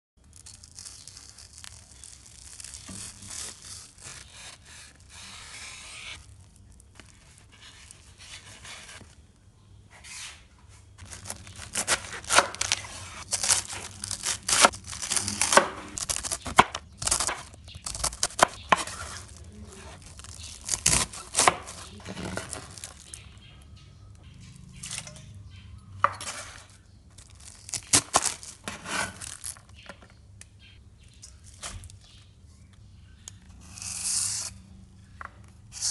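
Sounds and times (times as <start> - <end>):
knife sawing through toasted bread: 2.6 - 6.2.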